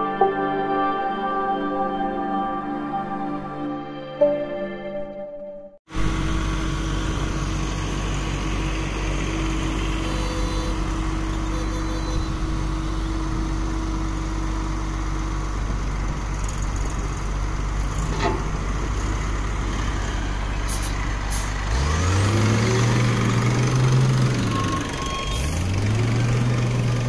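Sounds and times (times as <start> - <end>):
tractor diesel engine revving: 5.9 - 27.0
wheel loader diesel engine running: 5.9 - 27.0.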